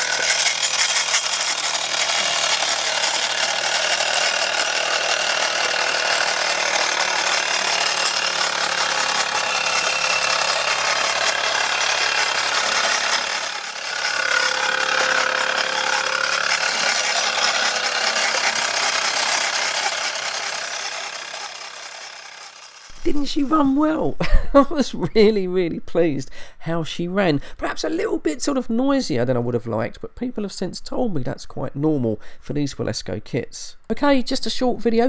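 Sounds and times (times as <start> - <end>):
model steam engine clattering: 0.0 - 22.9.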